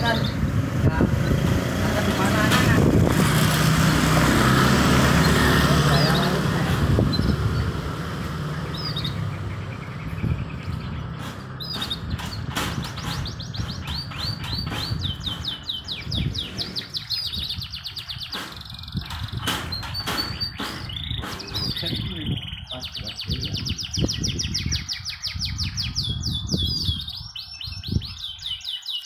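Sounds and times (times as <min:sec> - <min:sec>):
motorcycle passing: 0:00.0 - 0:11.9
canaries singing: 0:00.0 - 0:29.0.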